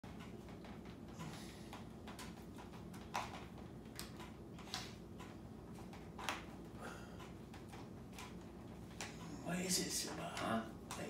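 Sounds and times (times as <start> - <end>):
faint clicks of small hard parts: 0.0 - 11.0.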